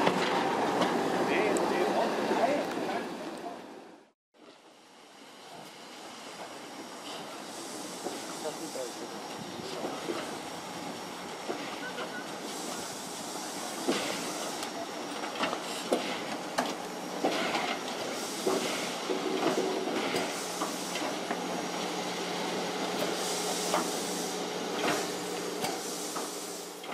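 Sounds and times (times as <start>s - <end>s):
steam hissing: 5.4s - 26.9s.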